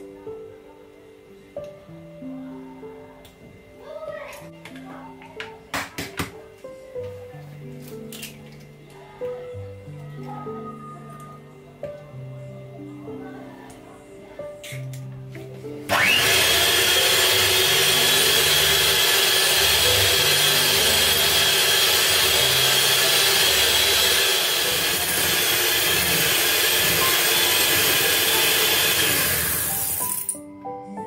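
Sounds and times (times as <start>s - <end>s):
electric hand mixer whining: 15.9s - 30.3s.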